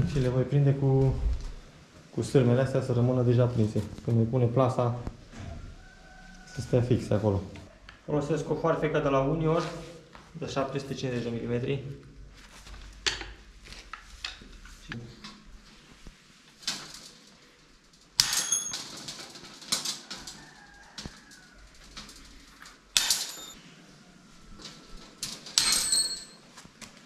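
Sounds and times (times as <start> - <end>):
metallic ringing: 18.2 - 18.9, 23.0 - 23.6, 25.6 - 26.4
metal pieces clinking: 18.2 - 20.1, 23.0 - 23.6, 25.3 - 26.4.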